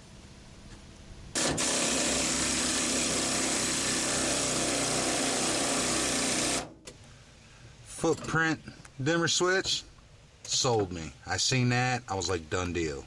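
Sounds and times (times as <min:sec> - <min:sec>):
air-powered tool running: 0:01.4 - 0:06.7.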